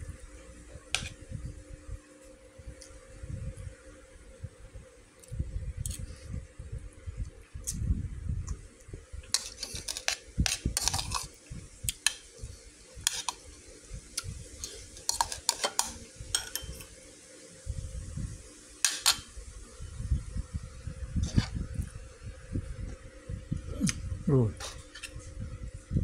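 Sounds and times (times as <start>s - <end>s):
metal spoon scraping a bowl: 9.3s - 11.4s, 13.0s - 13.4s, 14.6s - 16.9s, 21.2s - 21.6s.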